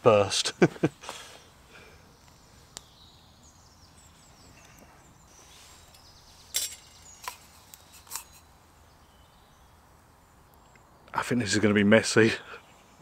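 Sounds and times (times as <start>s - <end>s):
high bird chirps: 2.1s - 9.8s
campfire embers popping: 5.8s - 8.6s.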